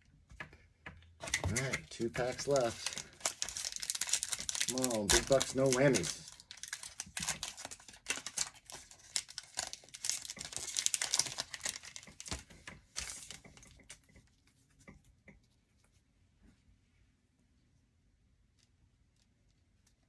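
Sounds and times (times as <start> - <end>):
foil wrapper tearing and crinkling: 1.4 - 13.9.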